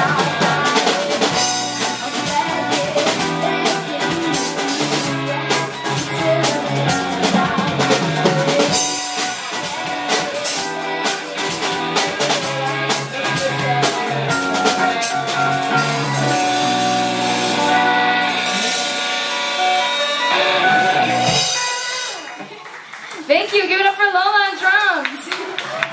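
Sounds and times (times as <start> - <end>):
drums hitting: 0.0 - 22.3
ringing guitar chords: 0.0 - 22.3
rock band playing: 0.0 - 23.0.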